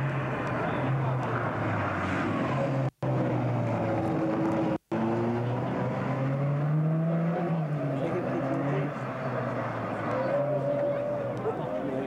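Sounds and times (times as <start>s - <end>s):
car engine pulling past: 0.0s - 12.0s
rally car engines revving: 0.0s - 12.0s.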